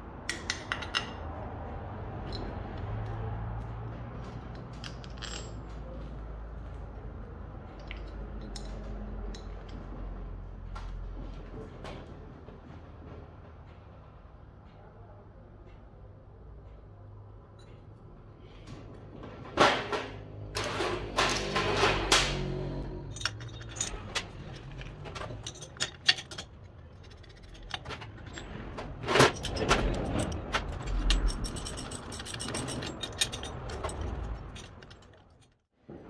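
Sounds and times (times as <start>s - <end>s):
metal clinking and clattering: 4.5s - 6.0s, 19.4s - 35.7s.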